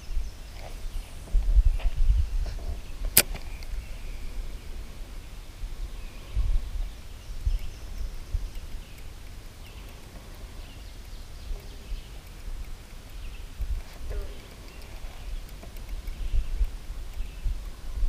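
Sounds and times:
wind rumble on microphone: 0.0 - 9.3, 11.2 - 18.0
birdsong chirping: 0.0 - 18.0
sharp click: 3.0 - 3.8, 8.5 - 17.4.

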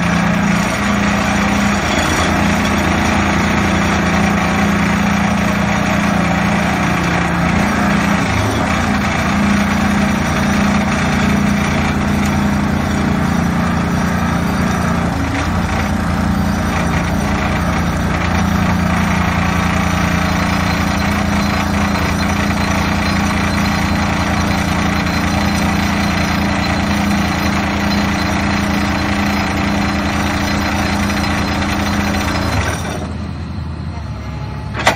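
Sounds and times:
plate compactor vibrating: 0.0 - 33.2
excavator engine and hydraulics hum: 0.0 - 34.9.

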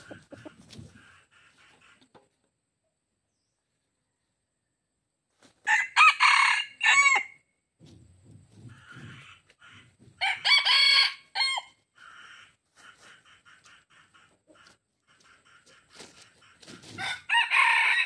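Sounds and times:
rooster crowing: 5.7 - 7.4, 10.2 - 11.8, 17.0 - 18.0
dry leaves rustling: 15.9 - 17.4.

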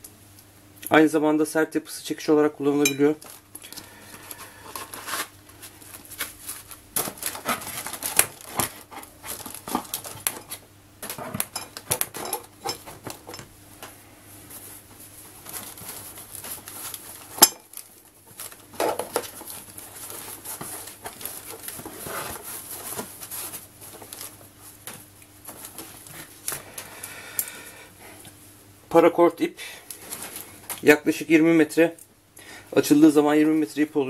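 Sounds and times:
rustling and scraping: 3.0 - 27.0, 30.0 - 30.8.

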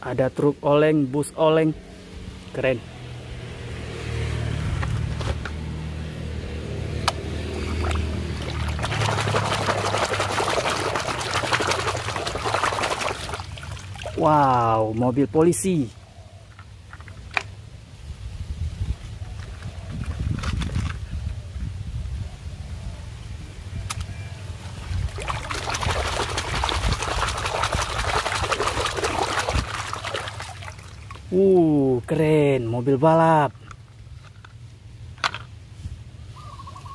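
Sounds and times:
water splashing in plastic basin: 7.5 - 14.8, 24.8 - 31.3.

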